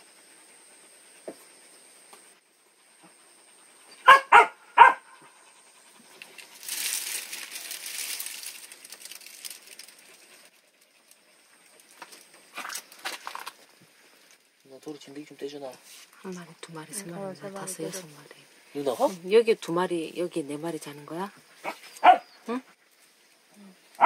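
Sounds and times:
rustling: 5.2s - 19.5s.

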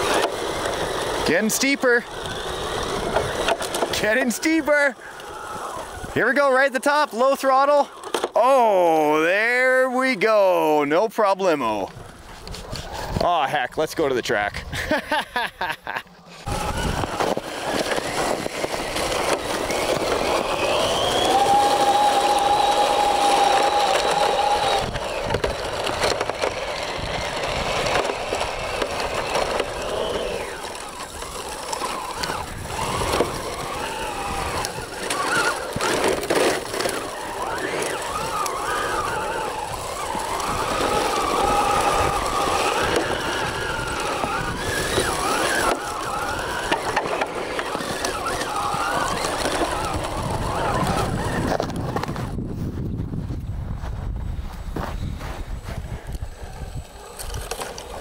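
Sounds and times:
toy truck motor whine: 0.0s - 10.8s, 15.6s - 52.4s, 54.4s - 58.0s
rattle of tracks: 15.9s - 52.4s.

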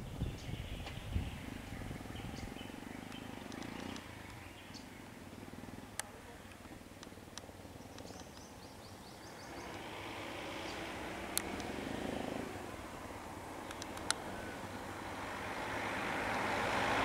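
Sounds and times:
vehicle engines running: 0.0s - 17.0s
sharp clicks: 3.1s - 4.4s, 11.3s - 11.8s, 13.6s - 14.2s.

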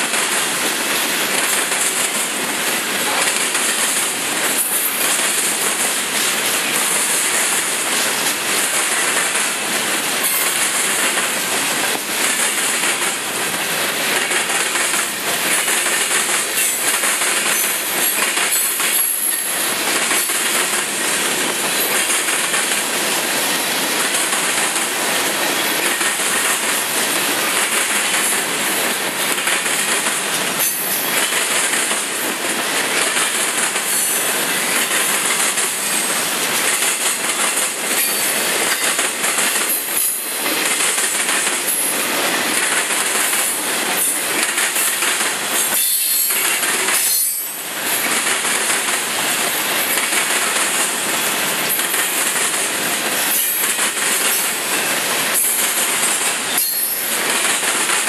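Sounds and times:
train wheels rumbling on rails: 0.0s - 58.0s
wheels clacking over rail joints: 0.0s - 58.0s.

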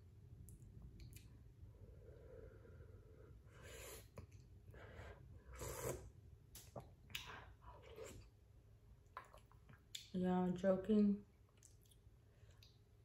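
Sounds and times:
person sipping and slurping: 5.4s - 6.2s, 7.6s - 8.3s.

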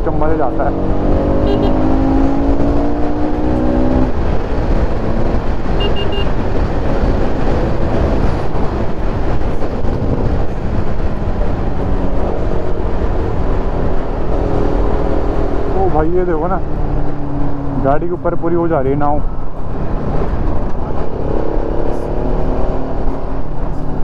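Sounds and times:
motorcycle engine: 0.0s - 18.2s
wind buffeting helmet: 0.8s - 15.8s.

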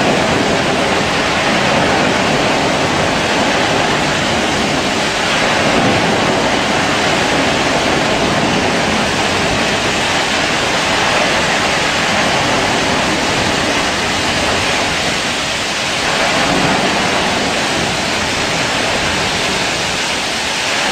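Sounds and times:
loud rushing well blowout: 0.0s - 20.9s.

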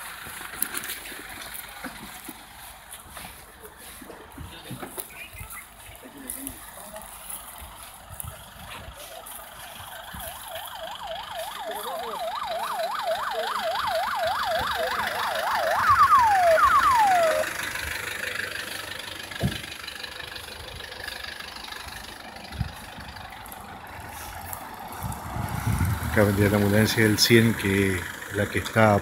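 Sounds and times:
ambulance siren: 6.7s - 29.0s
thump: 19.4s - 19.7s.

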